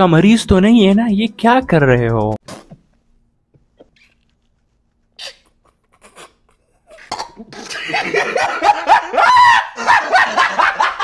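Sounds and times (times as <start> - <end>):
person laughing loudly: 7.4 - 11.0.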